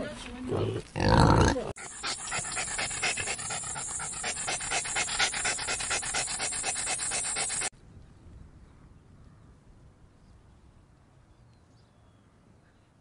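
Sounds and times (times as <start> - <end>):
dog panting rapidly: 1.8 - 7.7.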